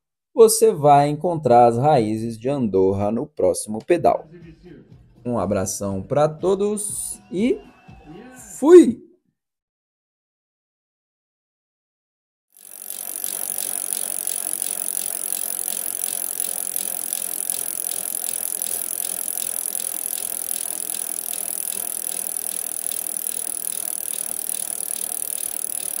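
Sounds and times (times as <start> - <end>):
bicycle freewheel hub ticking: 12.6 - 26.0.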